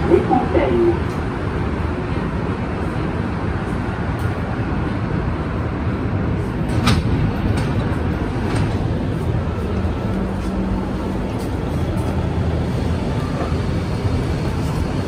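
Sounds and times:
train running rumble: 0:00.0 - 0:15.0.

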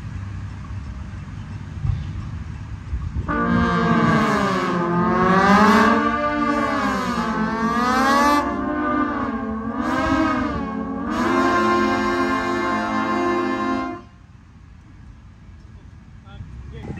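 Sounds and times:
trombones playing glissandi: 0:03.2 - 0:14.2.

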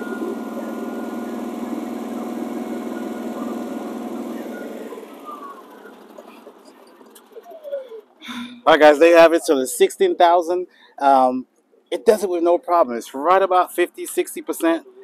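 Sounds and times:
engine winding down: 0:00.0 - 0:08.2
generator running: 0:00.0 - 0:09.5.

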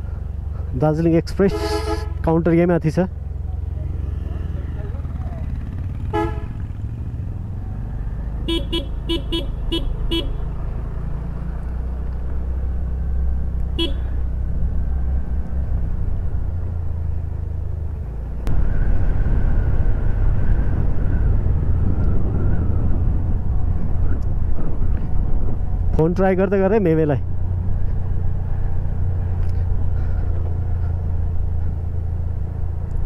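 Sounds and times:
low engine rumble: 0:00.0 - 0:33.0
vehicle horn tooting: 0:01.4 - 0:02.3, 0:06.1 - 0:06.6, 0:08.5 - 0:10.4, 0:13.8 - 0:14.2.

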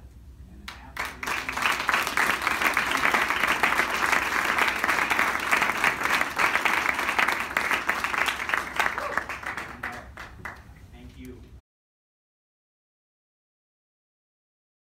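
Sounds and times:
audience clapping: 0:00.7 - 0:10.8.

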